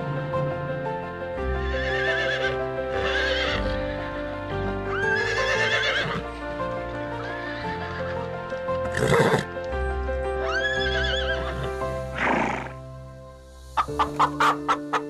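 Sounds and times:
background music: 0:00.0 - 0:15.0
horse whinnying: 0:01.6 - 0:04.0, 0:04.9 - 0:06.3, 0:07.2 - 0:09.5, 0:10.5 - 0:12.8.

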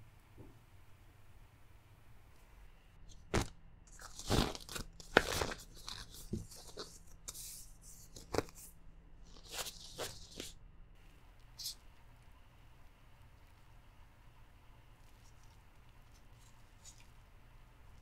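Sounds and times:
plastic glove crinkling: 0:03.1 - 0:10.6, 0:14.9 - 0:18.0.

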